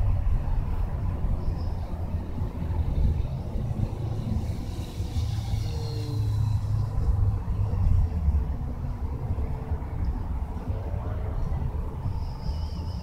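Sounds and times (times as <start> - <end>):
wind buffeting microphone: 0.0 - 13.0
model plane motor whine passing: 4.2 - 7.0.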